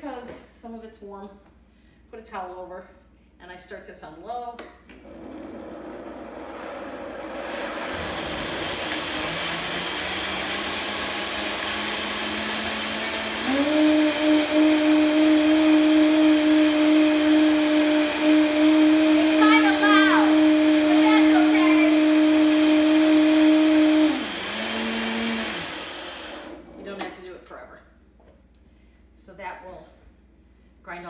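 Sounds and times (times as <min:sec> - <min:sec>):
blender motor humming: 0:05.0 - 0:26.8.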